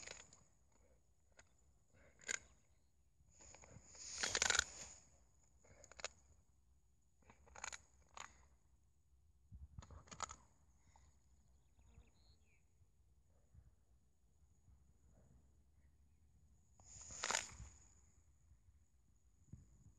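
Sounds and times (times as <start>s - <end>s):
dog crunching and chewing: 0.0s - 0.3s, 2.0s - 2.5s, 4.2s - 4.7s, 7.3s - 8.4s, 9.8s - 10.4s
rustling in dry grass: 3.4s - 5.0s, 16.9s - 17.7s.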